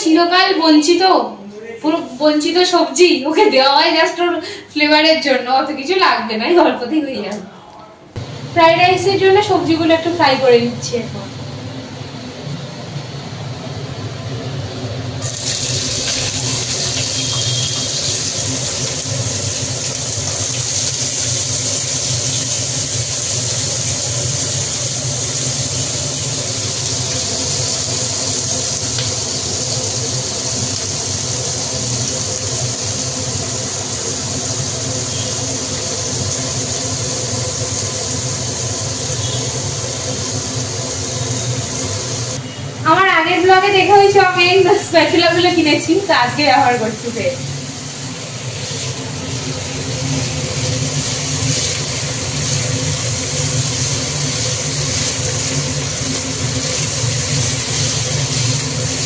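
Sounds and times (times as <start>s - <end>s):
vegetables sizzling in oil: 15.2s - 59.0s.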